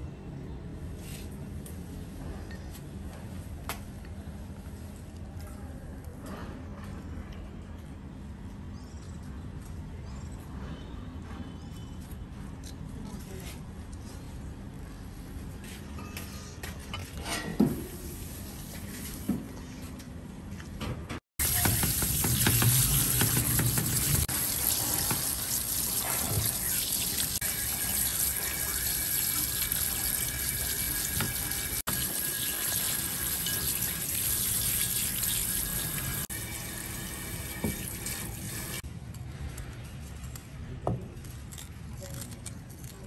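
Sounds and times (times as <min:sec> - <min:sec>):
tap water running into colander: 0:21.4 - 0:38.8.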